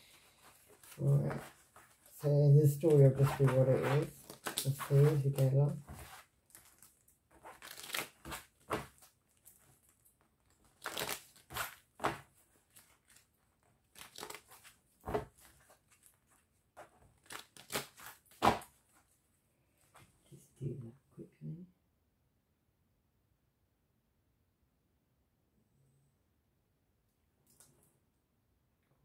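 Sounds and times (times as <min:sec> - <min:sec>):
cards being shuffled: 0:00.4 - 0:18.8.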